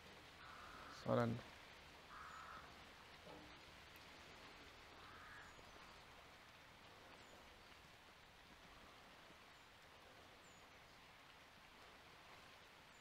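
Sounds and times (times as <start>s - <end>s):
distant bird calling: 0.3s - 1.1s, 2.0s - 7.8s.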